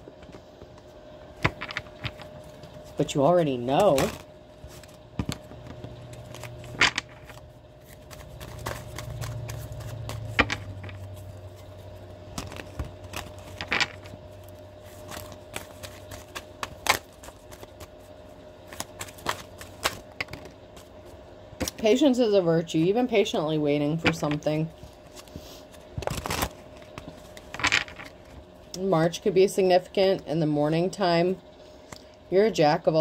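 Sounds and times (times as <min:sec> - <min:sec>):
cards being shuffled: 0:03.7 - 0:21.9, 0:24.1 - 0:28.4.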